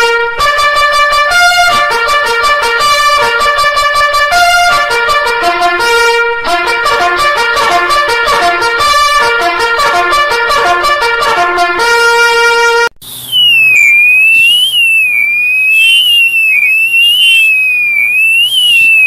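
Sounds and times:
trumpet-like alert melody: 0.0 - 12.9
electronic alarm sweeping pitch: 13.0 - 19.0.

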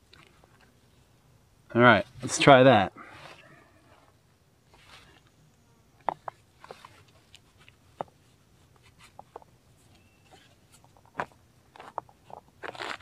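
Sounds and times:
webbing straps rustling: 2.1 - 5.4, 6.1 - 13.0.

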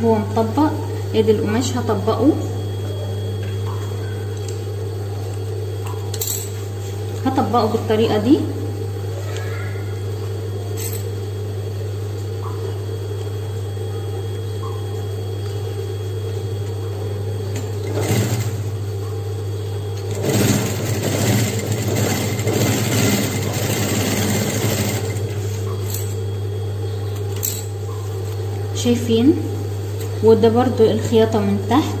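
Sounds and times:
sewing machine stitching: 20.1 - 25.3.

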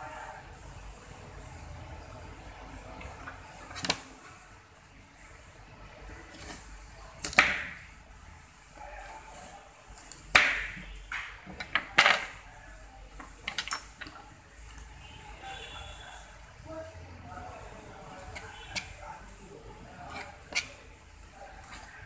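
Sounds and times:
knife cutting carrot: 6.3 - 7.7, 19.9 - 20.9.

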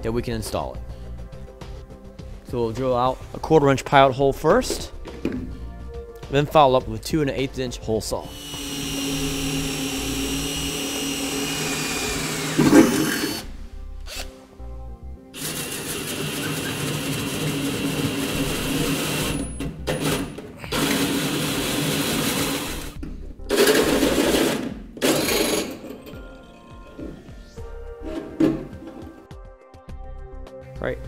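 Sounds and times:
cordless drill motor whine: 8.3 - 13.4, 15.4 - 19.6
hole saw cutting sheet metal: 8.3 - 13.5, 15.4 - 26.0.

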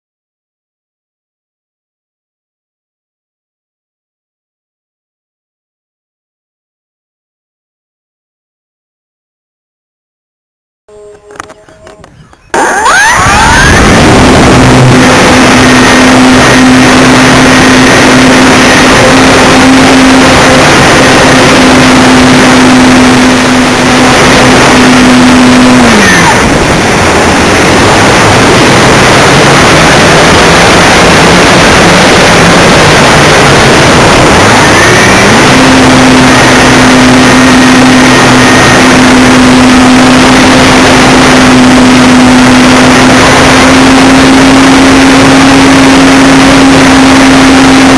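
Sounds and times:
model airplane engine and propeller: 10.9 - 47.9
wind rush: 12.1 - 47.9.

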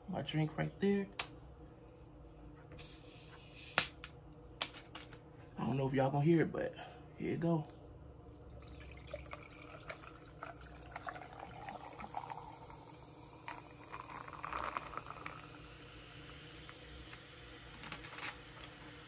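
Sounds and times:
drink pouring into a glass: 8.2 - 19.0.

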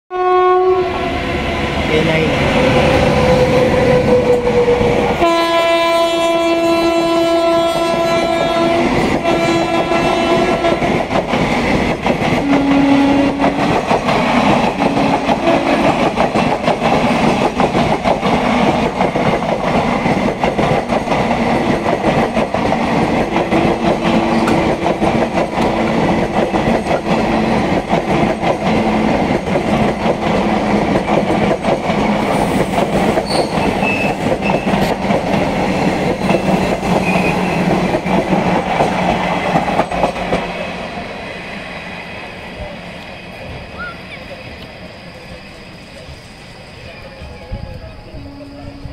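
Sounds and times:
train horn blasts: 0.1 - 1.2, 5.2 - 11.0, 12.4 - 13.7, 14.8 - 15.8
train wheels clattering: 7.8 - 40.6.

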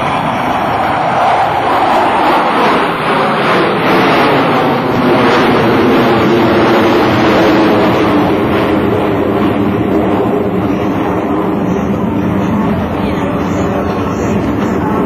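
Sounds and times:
jet engines roaring overhead: 0.0 - 15.0.

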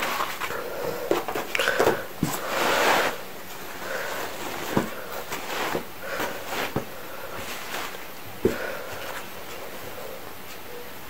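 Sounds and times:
fabric rustling: 1.2 - 9.6.

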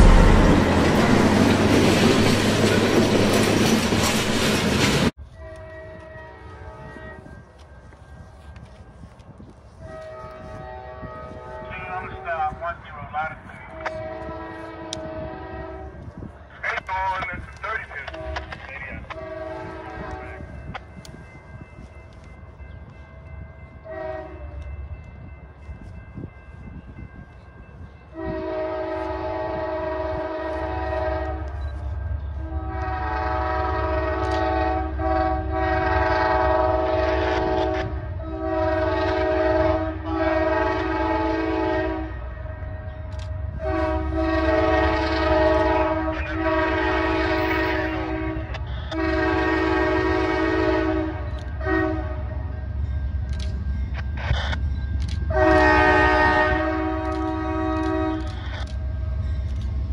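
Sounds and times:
train air horn blasts: 0.0 - 2.3, 5.3 - 7.4, 9.7 - 12.5, 13.6 - 16.3, 18.0 - 20.5, 23.8 - 24.6, 28.1 - 31.6, 32.3 - 52.6, 55.1 - 59.1
locomotive rumble: 0.0 - 5.2.

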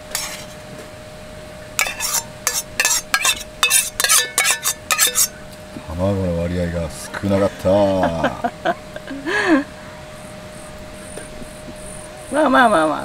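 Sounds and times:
metal utensils scraping a pan: 0.0 - 0.6, 1.8 - 5.4
faint steady hum: 0.0 - 13.0.

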